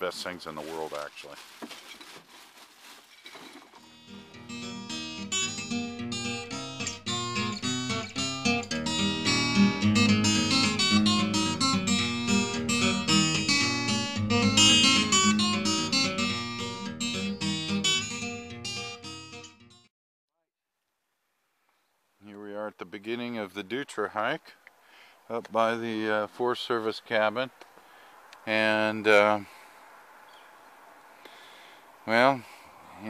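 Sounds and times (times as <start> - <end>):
acoustic guitar plucking: 3.8 - 19.8.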